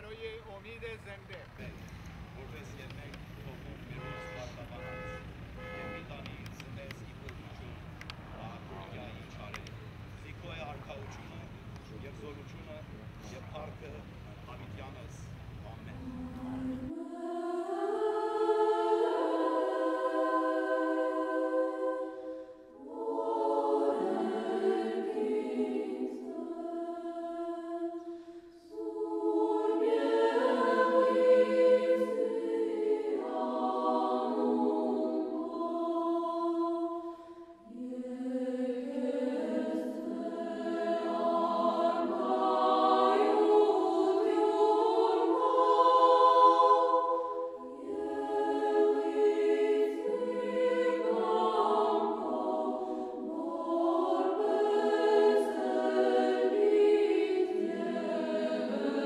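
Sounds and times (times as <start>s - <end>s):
congregation singing a hymn: 0.0s - 59.0s.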